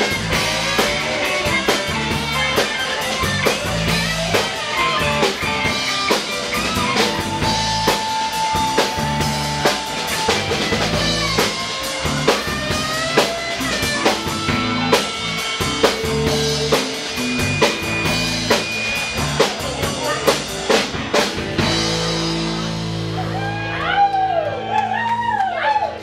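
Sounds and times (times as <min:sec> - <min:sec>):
drum kit beat: 0:00.0 - 0:24.0
country band playing: 0:00.0 - 0:25.1
audience whooping: 0:23.0 - 0:26.0.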